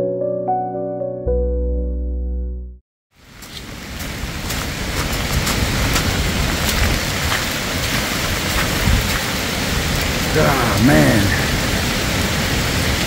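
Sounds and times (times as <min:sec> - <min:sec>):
piano music: 0:00.0 - 0:02.8
heavy rain hiss: 0:03.2 - 0:13.0
raindrops ticking: 0:03.3 - 0:12.0.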